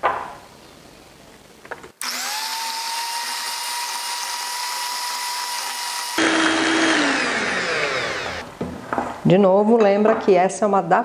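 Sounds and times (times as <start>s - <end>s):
electric hand mixer whining: 2.0s - 8.5s.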